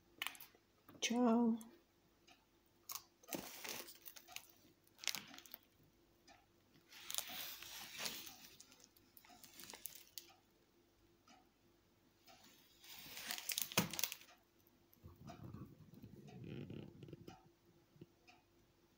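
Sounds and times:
plastic wrapper crinkling: 3.2s - 5.7s, 6.9s - 10.3s, 12.8s - 14.4s.

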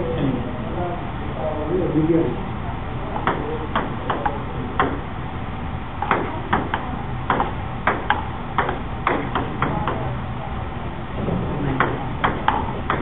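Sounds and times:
table tennis ball bouncing: 6.0s - 10.0s.

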